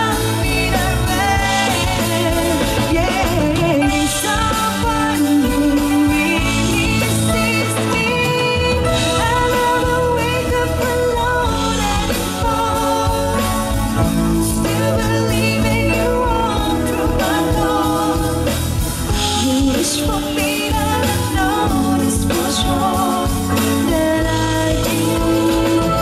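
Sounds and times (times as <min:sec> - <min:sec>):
pop song through pa: 0:00.0 - 0:26.0.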